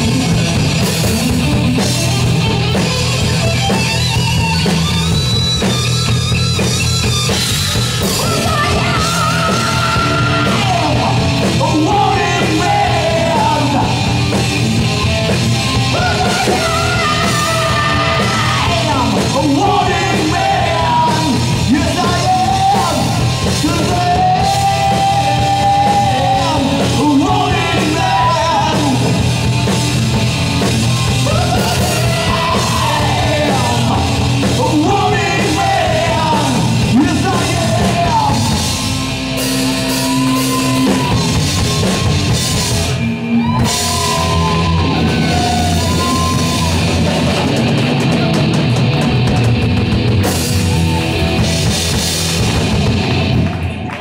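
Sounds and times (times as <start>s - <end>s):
live rock band playing: 0.0s - 54.0s
singer belting and shouting: 7.6s - 29.7s, 30.5s - 47.6s.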